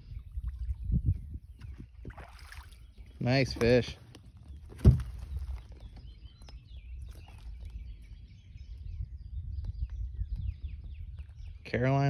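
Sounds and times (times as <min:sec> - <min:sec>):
small birds chirping: 0:00.0 - 0:12.0
loud thump: 0:04.8 - 0:05.1.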